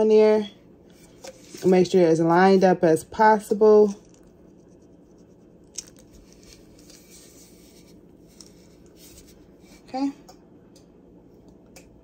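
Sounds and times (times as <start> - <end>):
paper rustling: 5.8 - 9.4.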